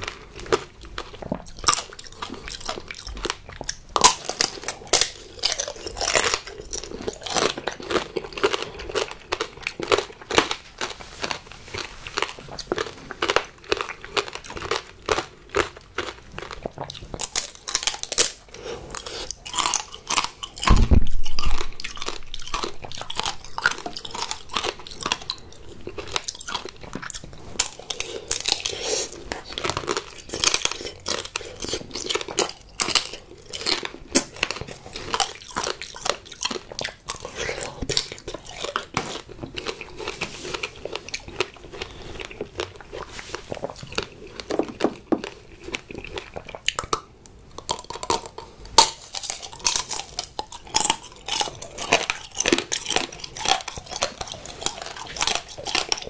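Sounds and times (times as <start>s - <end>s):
candy shell crunching: 0.0s - 47.0s, 47.6s - 56.0s
wet chewing of fruit: 0.0s - 56.0s
loud dull thump: 20.6s - 21.8s.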